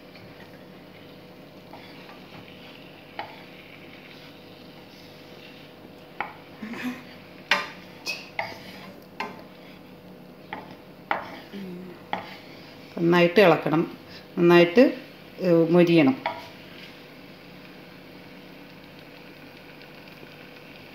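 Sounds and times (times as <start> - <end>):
garlic sizzling in oil: 0.0 - 20.9
spatula scraping and knocking pan: 1.7 - 6.4, 7.5 - 9.8, 10.4 - 11.5, 12.1 - 12.5.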